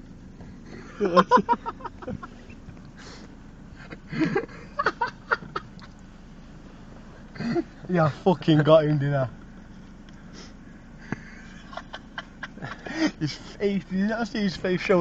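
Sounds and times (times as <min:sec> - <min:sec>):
low steady hum: 0:00.0 - 0:15.0
men laughing and sniggering: 0:00.6 - 0:06.1, 0:07.1 - 0:09.2, 0:09.9 - 0:14.5.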